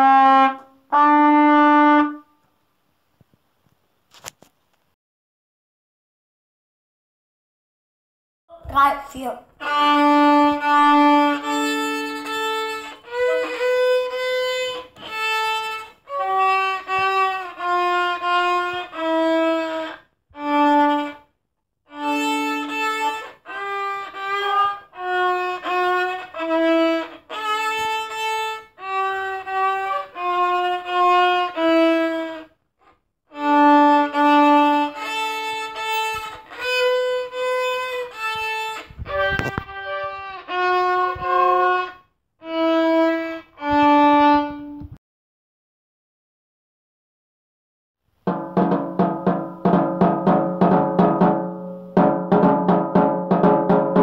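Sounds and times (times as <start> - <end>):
solo violin melody: 9.5 - 32.6, 33.3 - 45.0.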